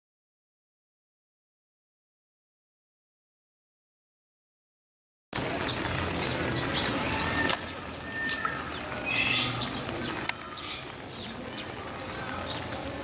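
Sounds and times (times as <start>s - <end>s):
birds chirping: 5.4s - 13.0s.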